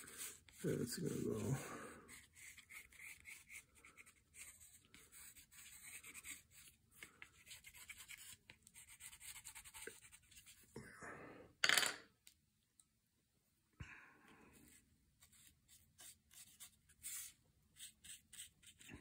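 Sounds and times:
pencil scratching on cardboard: 0.0 - 1.5, 2.1 - 10.6, 15.2 - 18.9.

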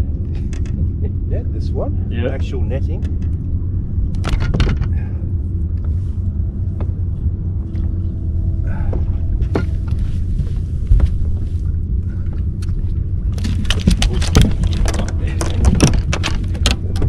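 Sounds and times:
boat low rumble: 0.0 - 17.0
knocks and clicks of handling: 13.4 - 17.0.

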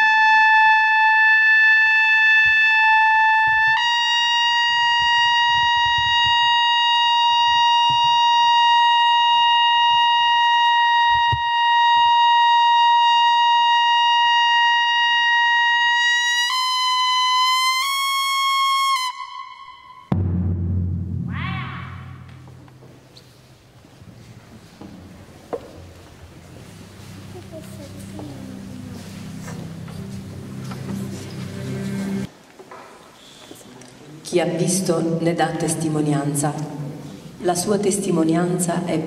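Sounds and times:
trumpet playing long high notes: 0.0 - 20.2.

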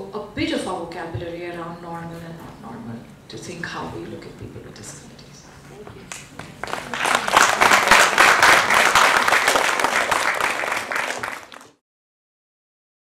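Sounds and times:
audience applauding: 6.1 - 11.8.

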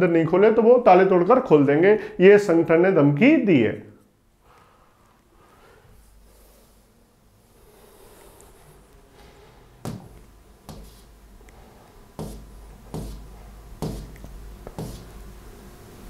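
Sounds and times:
short sharp knocks: 9.8 - 11.1, 12.2 - 15.1.

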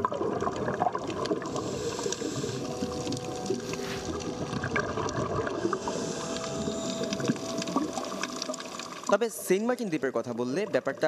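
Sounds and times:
diver's bubbles gurgling underwater: 0.0 - 9.1
small underwater crackles and clicks: 0.0 - 11.0
faint hum: 1.4 - 9.0.

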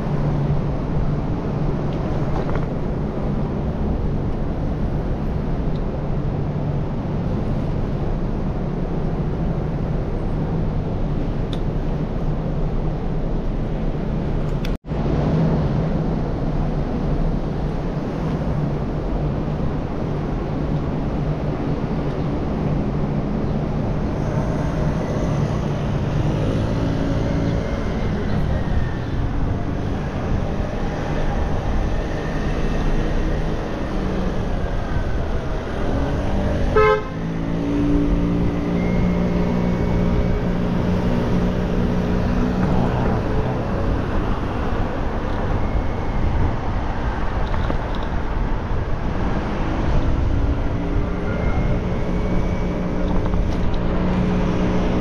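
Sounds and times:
car and motorbike engines: 0.0 - 55.0
road noise: 0.0 - 55.0
car horn toot: 36.7 - 37.2.

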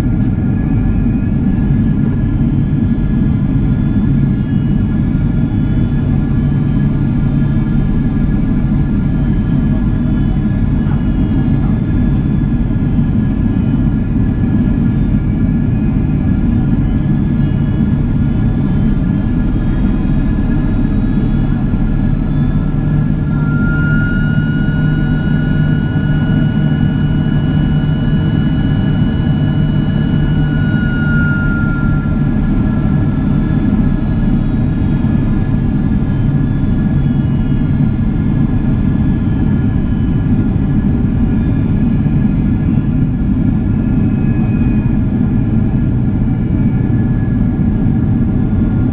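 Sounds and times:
airflow rush in cabin: 0.0 - 48.9
jet engine hum and whine: 0.0 - 48.9
steady high tone: 16.4 - 46.5.

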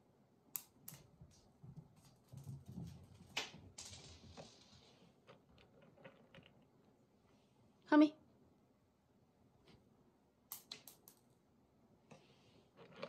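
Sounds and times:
cat paws running on tile floor: 0.9 - 6.8.

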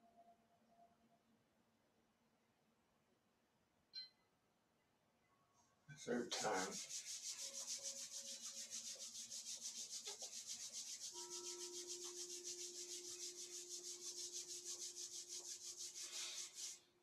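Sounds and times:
palms rubbing together: 6.0 - 16.9.

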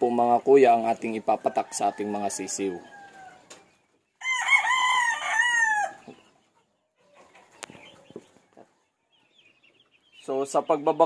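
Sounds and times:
rooster crowing: 1.4 - 3.4, 4.2 - 6.2.

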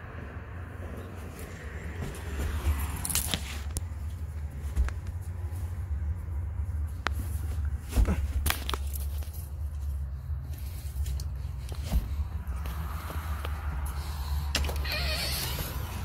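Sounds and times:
steady low rumble: 0.0 - 14.6.

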